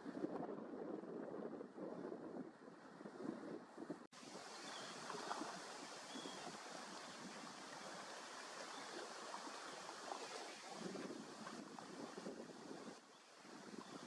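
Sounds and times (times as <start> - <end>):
waves lapping against rocks: 4.1 - 14.0.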